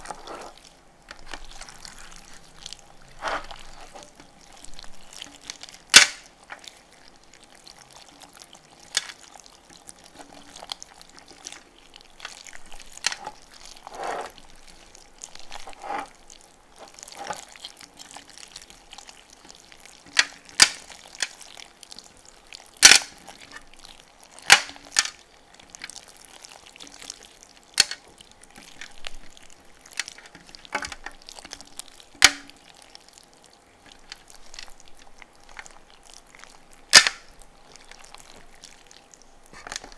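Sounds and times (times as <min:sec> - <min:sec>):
slime squelching: 0:00.0 - 0:39.9
slime pops and crackles: 0:05.0 - 0:06.7, 0:20.0 - 0:21.5, 0:22.7 - 0:23.6, 0:24.4 - 0:26.1, 0:27.7 - 0:29.2, 0:29.9 - 0:32.7, 0:36.8 - 0:39.9.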